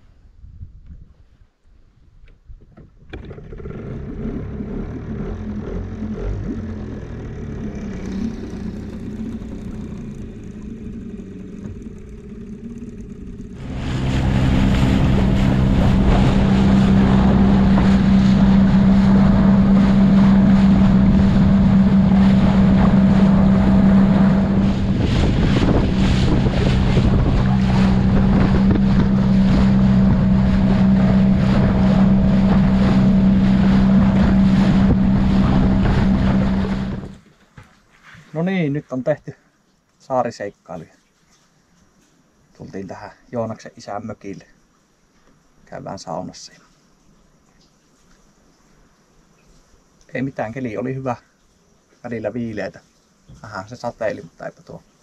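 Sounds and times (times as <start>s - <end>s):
wind buffeting microphone: 0.3s - 1.4s, 6.4s - 37.2s
outboard motor running: 2.8s - 37.3s
water rushing past hull: 2.9s - 39.1s.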